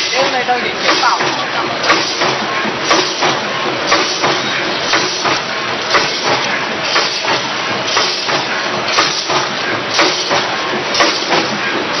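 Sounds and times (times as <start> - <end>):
packing machine hissing: 0.0 - 12.0.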